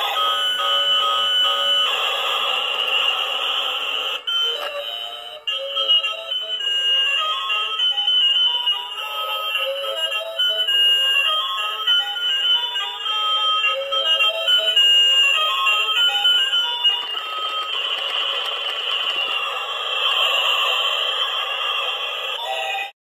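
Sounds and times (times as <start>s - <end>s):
toy vehicle electronic jingle: 0.0s - 23.0s.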